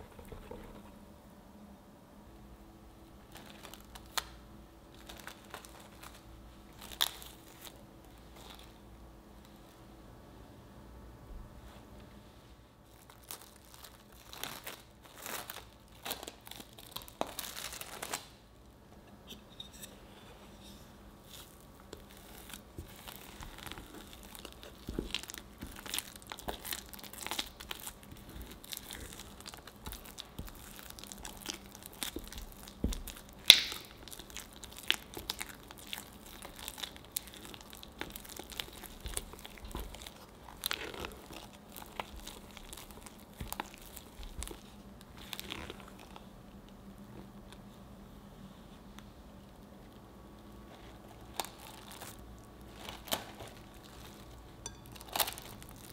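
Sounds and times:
sticky dough squishing: 0:03.2 - 0:09.7, 0:12.8 - 0:18.4, 0:21.0 - 0:55.9
cling wrap crinkling: 0:03.3 - 0:09.7, 0:12.8 - 0:18.4, 0:21.1 - 0:46.6, 0:49.9 - 0:55.9.

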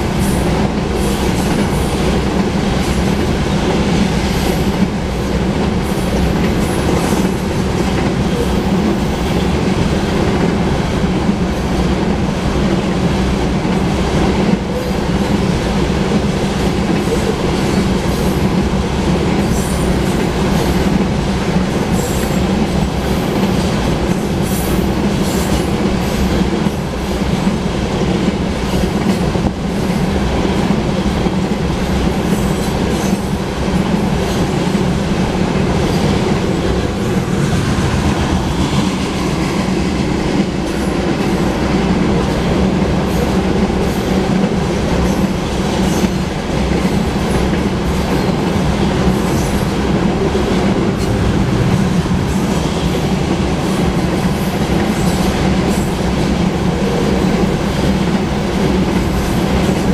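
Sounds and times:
steel wheels clattering on rail: 0:00.0 - 0:59.9.

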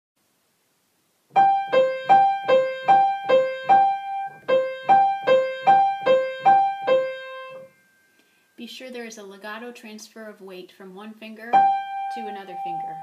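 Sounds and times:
piano alternating single notes: 0:01.3 - 0:07.9, 0:11.5 - 0:13.0.

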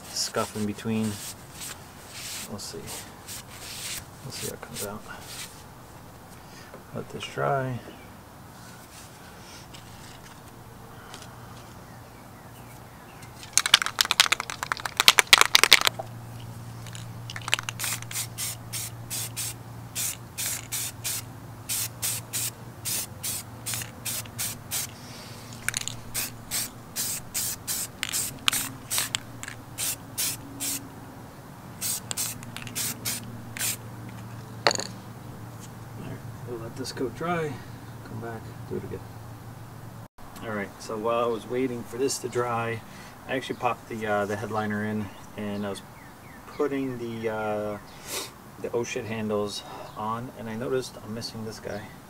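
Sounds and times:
spray paint hissing bursts: 0:00.0 - 0:05.6, 0:17.3 - 0:30.8, 0:31.8 - 0:33.8
spray can ball rattling: 0:13.4 - 0:16.1, 0:16.8 - 0:30.8, 0:31.8 - 0:34.9.

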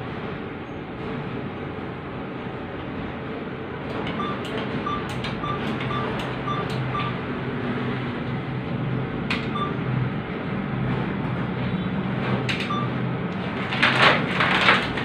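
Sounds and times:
keypad beeps: 0:04.1 - 0:07.2, 0:09.4 - 0:09.8, 0:12.5 - 0:13.0.

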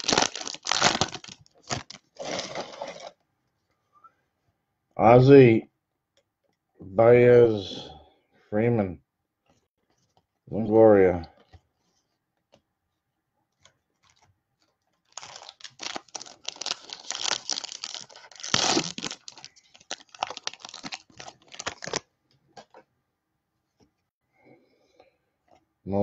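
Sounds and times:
wrapper tearing and crinkling: 0:00.0 - 0:03.1, 0:15.0 - 0:22.1.

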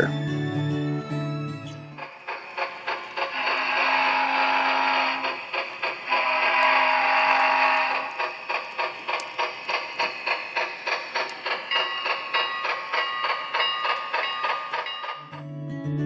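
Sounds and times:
steam locomotive chuffs: 0:02.0 - 0:15.4
locomotive whistle blast: 0:03.4 - 0:05.2, 0:06.1 - 0:08.0.

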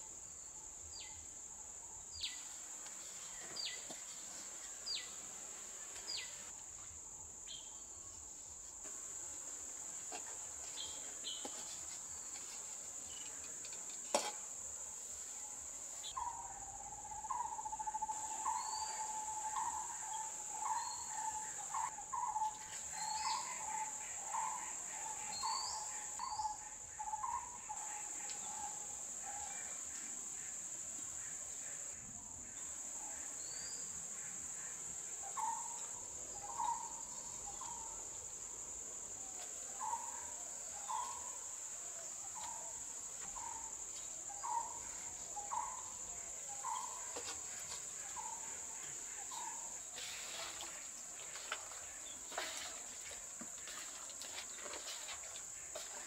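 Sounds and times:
insect chirring: 0:12.1 - 0:29.6, 0:30.4 - 0:50.0.

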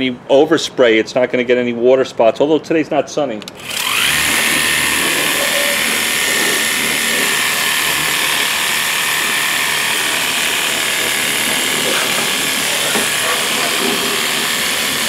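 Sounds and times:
pressure washer motor whine: 0:03.6 - 0:15.0
water jet hissing: 0:03.9 - 0:15.0.

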